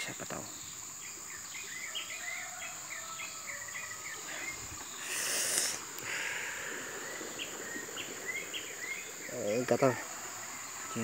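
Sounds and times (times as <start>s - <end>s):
bird chirping: 0.0s - 11.0s
high-pitched insect drone: 0.0s - 11.0s
brief rushing hiss: 4.7s - 7.9s.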